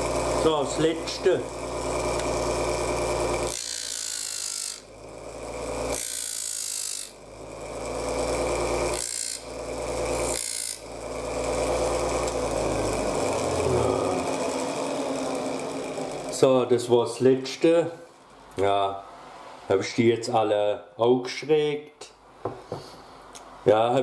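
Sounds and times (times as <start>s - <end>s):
disc sander motor hum: 0.0s - 17.0s.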